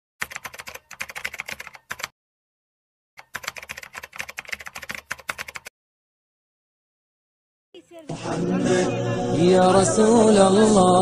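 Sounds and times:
keyboard typing clicks: 0.2s - 2.1s, 3.2s - 5.7s.

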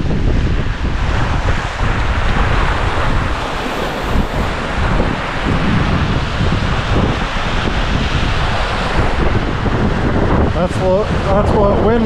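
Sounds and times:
wind buffeting microphone: 0.0s - 12.0s
waves washing on rocky shore: 1.7s - 9.4s.

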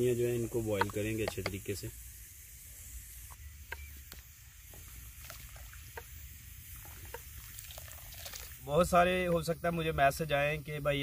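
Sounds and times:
stock boiling hard in a pot: 0.0s - 8.9s
pops and crackles: 0.7s - 1.8s, 3.2s - 8.6s.

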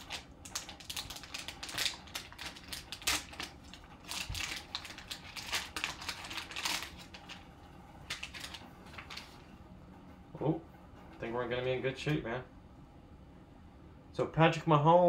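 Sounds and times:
foil pouch crinkling: 0.0s - 9.4s.

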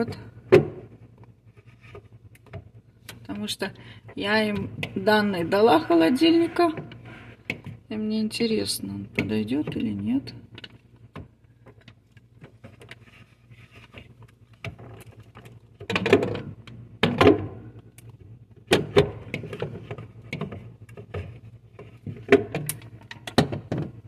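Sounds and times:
low steady hum: 0.0s - 24.0s
hard plastic knocking and scraping: 18.6s - 24.0s.

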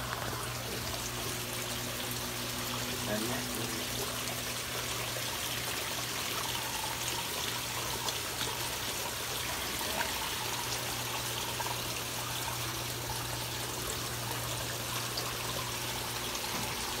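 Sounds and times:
low steady hum: 0.0s - 17.0s
water trickling: 0.0s - 17.0s.

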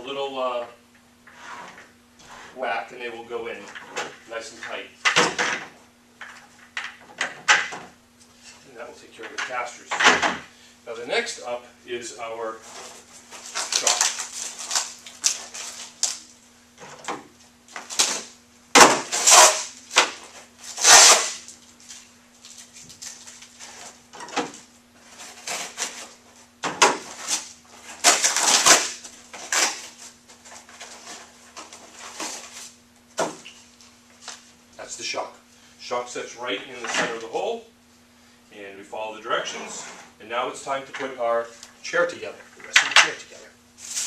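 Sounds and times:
faint steady hum: 0.0s - 44.0s
paper packaging rustling: 12.7s - 16.2s.

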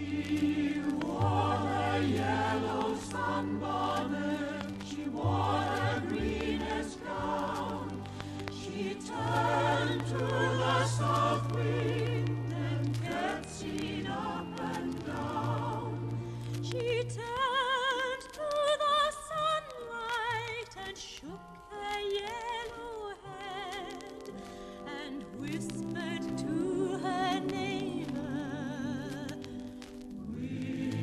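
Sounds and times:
choir singing with vibrato: 0.0s - 18.3s, 24.9s - 31.0s
vinyl surface crackle: 0.0s - 31.0s.

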